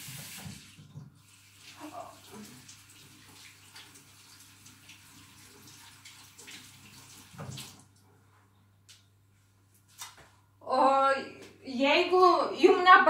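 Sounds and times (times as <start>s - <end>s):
tap running into sink: 0.0s - 1.2s, 7.2s - 7.8s.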